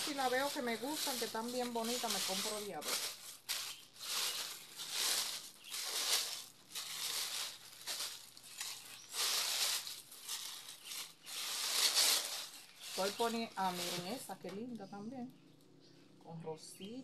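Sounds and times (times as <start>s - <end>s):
packing paper crinkling: 0.0s - 14.6s.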